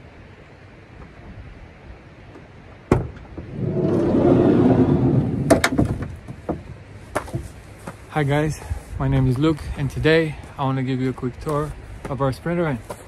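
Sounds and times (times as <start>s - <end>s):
sliding door rolling rumble: 3.3s - 6.3s.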